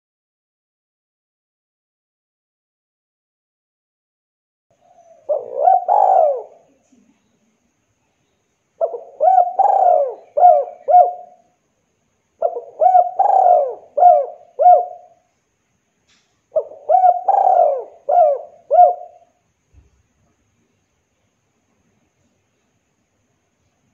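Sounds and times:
dove cooing: 4.8 - 6.8, 8.8 - 11.5, 12.4 - 15.2, 16.5 - 19.4.

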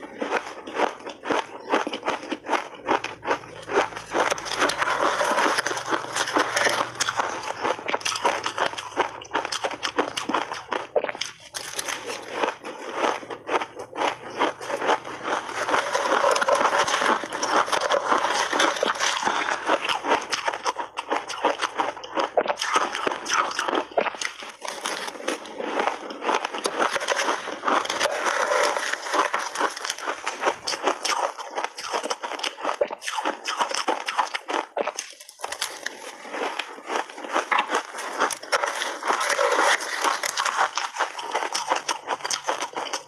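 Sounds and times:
chewing crunchy ice: 0.0 - 43.0.

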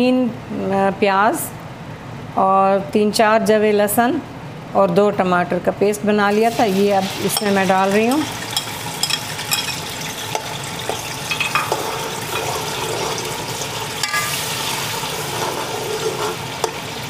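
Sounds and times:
food sizzling in hot oil: 6.3 - 17.0
steel spoon scraping and clinking: 7.3 - 13.4, 14.0 - 14.4, 15.1 - 16.8.

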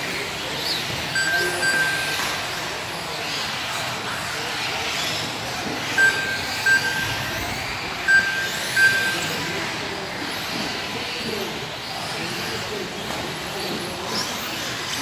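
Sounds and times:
rc cars whirring: 0.0 - 15.0
short electronic beeps: 1.2 - 2.4, 6.0 - 9.6.

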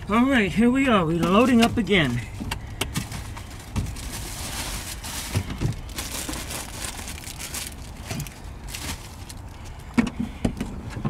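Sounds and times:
plastic bags rustling: 1.3 - 9.9.

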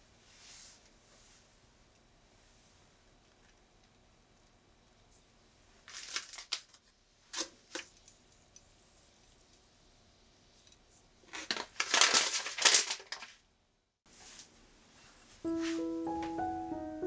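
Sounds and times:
dry rustling and crinkling: 5.1 - 8.3, 11.2 - 13.4.

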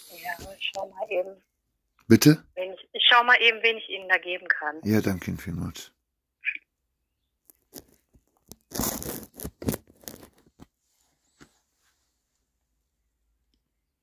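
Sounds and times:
smartphone handling scrapes: 7.6 - 10.7.

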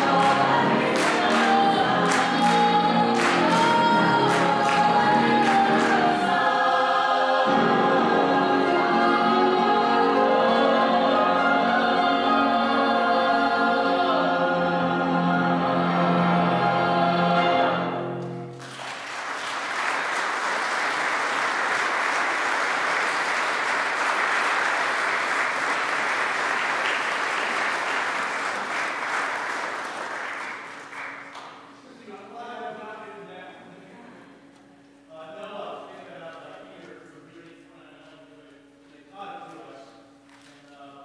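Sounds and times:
audience applause: 0.0 - 6.2, 18.5 - 31.7
choir holding a chord: 0.0 - 18.6.

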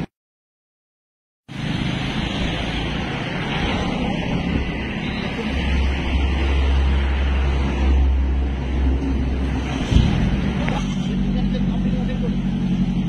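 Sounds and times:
heavy low rumble: 3.1 - 13.0.

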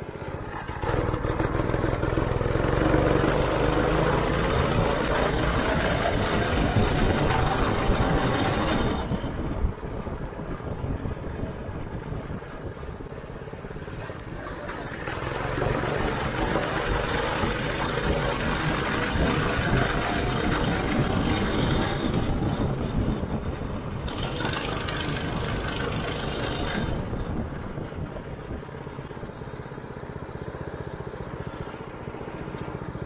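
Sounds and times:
small kart engine running: 0.0 - 33.0.

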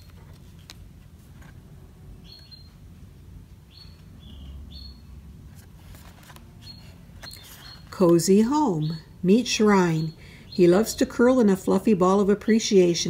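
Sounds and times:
cards tapping and rustling: 5.6 - 6.5.

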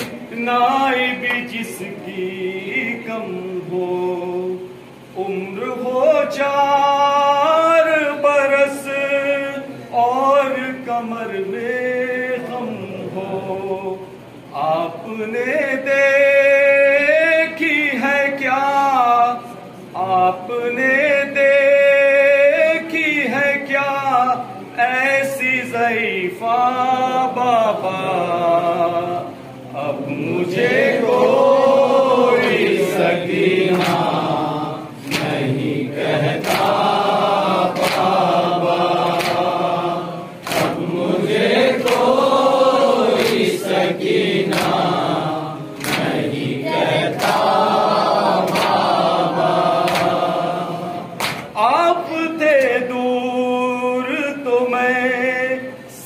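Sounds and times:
man singing a lament: 0.3 - 34.8, 51.6 - 56.0
group singing chorus: 25.6 - 56.0
chest-beating slaps: 33.7 - 34.2, 35.0 - 35.6, 36.4 - 36.8, 37.7 - 38.2, 39.0 - 39.6, 40.4 - 40.9, 41.8 - 42.2, 43.1 - 43.7, 44.5 - 45.0, 45.8 - 46.3, 48.4 - 49.1, 49.7 - 50.3, 51.2 - 51.6.

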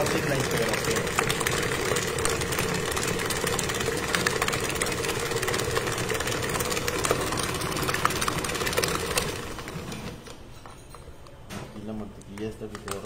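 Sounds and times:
stand mixer motor hum: 0.0 - 10.2.

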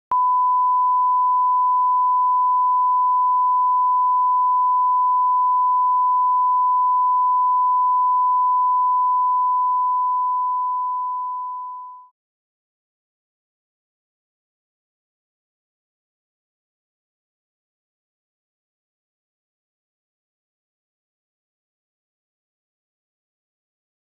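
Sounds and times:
steady electronic test tone: 0.1 - 12.1.

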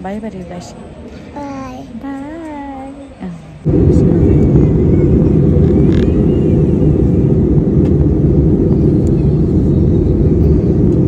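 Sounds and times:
airliner engines rumbling in cabin: 2.5 - 11.0.

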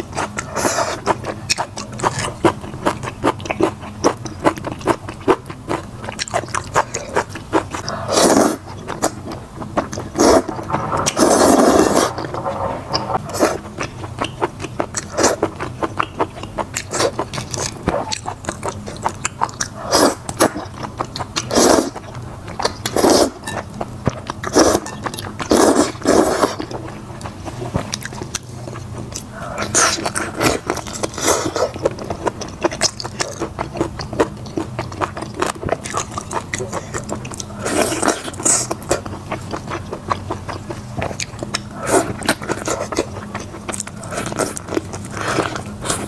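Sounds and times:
noodle slurping: 9.8 - 13.7
wet chewing and lip smacking: 26.6 - 46.0.

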